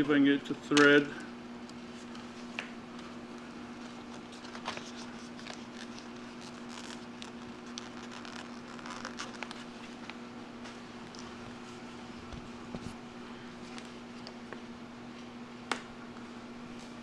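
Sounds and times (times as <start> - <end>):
steady low hum: 0.0 - 17.0
paper rustling: 1.8 - 11.7.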